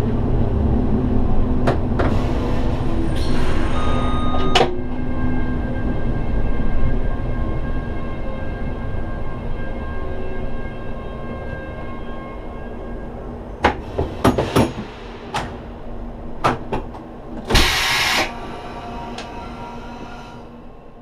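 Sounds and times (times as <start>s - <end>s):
loud air hiss: 17.5s - 20.4s.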